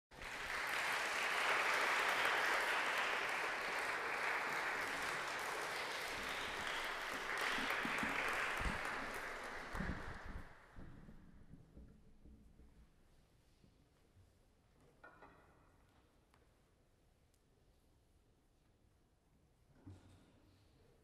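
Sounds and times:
audience applauding: 0.1s - 10.7s.

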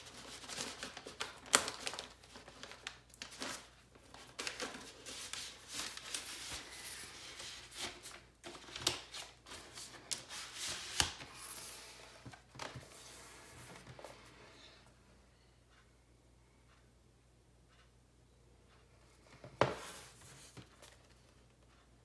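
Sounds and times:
paper sleeve rustling and scraping: 0.0s - 14.3s.

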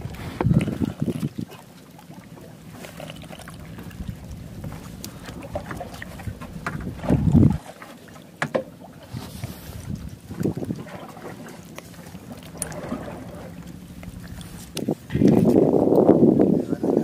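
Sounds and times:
wind on microphone: 0.0s - 1.6s, 3.7s - 7.7s, 9.0s - 11.4s, 12.6s - 17.0s
boat engine low rumble: 0.0s - 17.0s.

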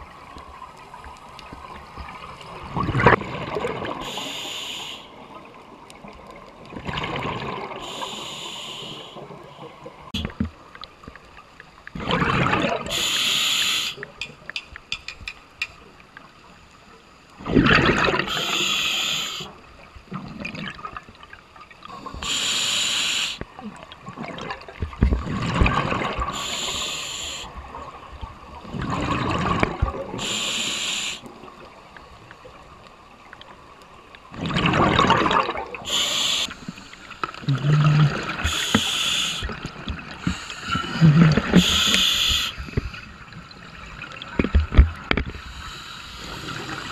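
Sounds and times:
regulator hiss on inhalation: 4.0s - 5.2s, 7.8s - 9.3s, 12.9s - 14.1s, 18.3s - 19.6s, 22.2s - 23.5s, 26.3s - 27.6s, 30.2s - 31.3s, 35.9s - 37.4s, 38.4s - 39.6s, 40.2s - 40.9s, 41.5s - 43.0s, 45.4s - 46.9s
bubbling on exhalation: 37.4s - 38.6s.

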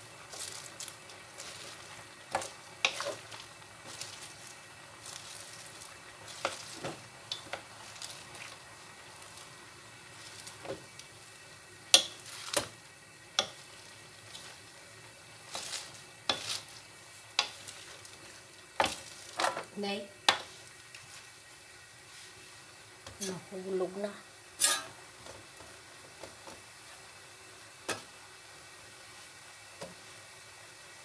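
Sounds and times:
vegetables sizzling in a pan: 0.0s - 31.0s
wooden spatulas knocking and scraping: 2.3s - 4.4s, 11.9s - 12.7s, 15.5s - 16.7s.

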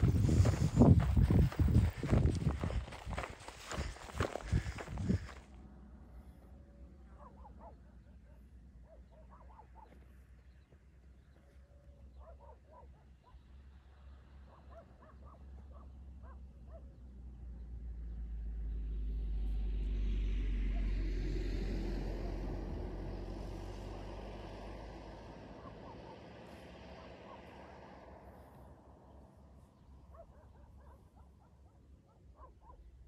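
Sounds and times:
car passing: 0.0s - 8.8s, 17.2s - 32.6s
dog barking: 7.0s - 10.1s, 12.1s - 13.4s, 14.4s - 17.0s, 25.5s - 26.4s, 27.0s - 27.6s, 30.0s - 33.0s.

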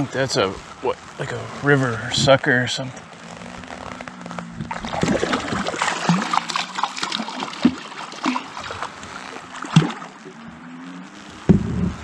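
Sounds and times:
fish splashing at water surface: 4.7s - 10.4s.

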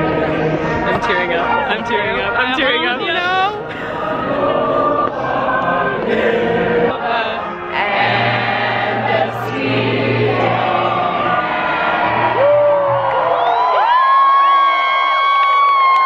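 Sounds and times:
choir of voices singing: 0.0s - 12.6s.

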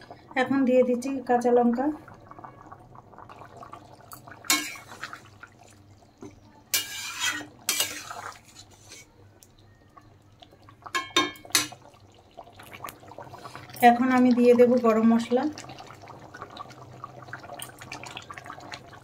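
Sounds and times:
metal spatula scraping a pan: 4.5s - 5.0s, 6.7s - 9.1s.

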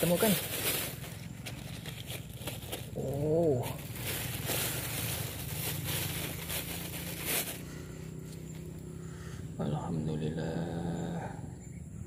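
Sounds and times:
plastic bag crinkling: 0.0s - 7.7s
dry leaves rustling: 0.0s - 8.8s
steady low hum: 0.6s - 12.0s
wavering hum-like voice: 9.6s - 11.9s.

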